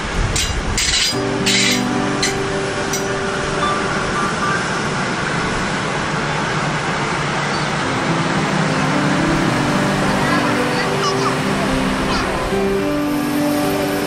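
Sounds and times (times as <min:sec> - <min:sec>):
train wheels rumbling on rail: 0:00.0 - 0:07.9.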